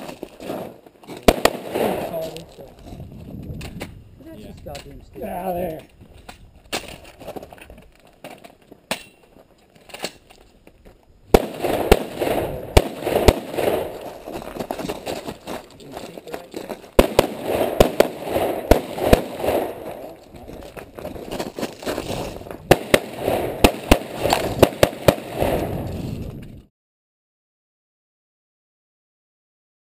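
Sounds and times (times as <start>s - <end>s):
gunshots with echo: 1.2s - 2.3s, 11.4s - 14.2s, 17.0s - 20.2s, 22.7s - 25.8s.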